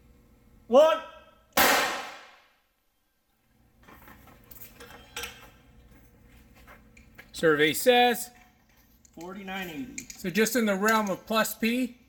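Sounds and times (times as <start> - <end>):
gunshot: 1.6 - 2.5.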